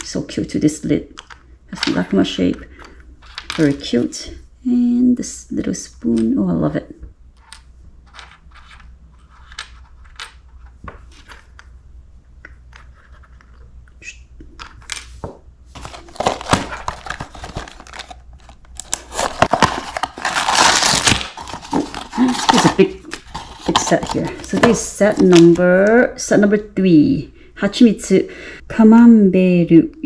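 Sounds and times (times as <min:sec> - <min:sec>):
cardboard box tearing: 0:15.8 - 0:18.2, 0:18.8 - 0:25.3.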